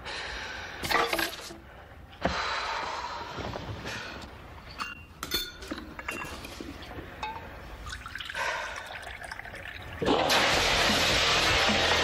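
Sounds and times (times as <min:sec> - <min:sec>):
crockery clinking: 0:04.6 - 0:06.6
loud music: 0:10.1 - 0:12.0.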